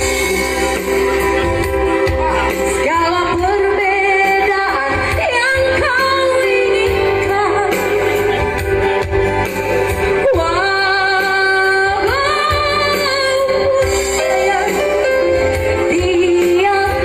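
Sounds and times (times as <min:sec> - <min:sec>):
backing track music: 0:00.0 - 0:17.0
woman singing pop ballad: 0:00.0 - 0:17.0.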